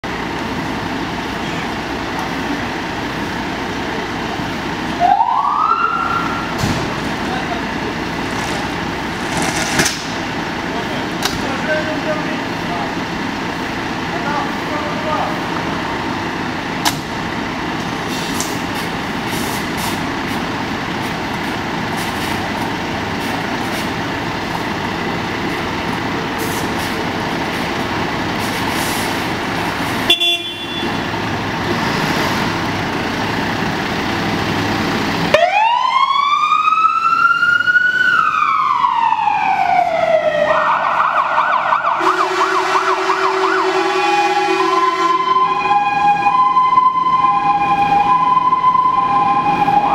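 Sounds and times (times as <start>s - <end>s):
diesel engine rumble: 0.0s - 49.9s
siren wailing and yelping: 5.0s - 6.5s, 35.3s - 49.9s.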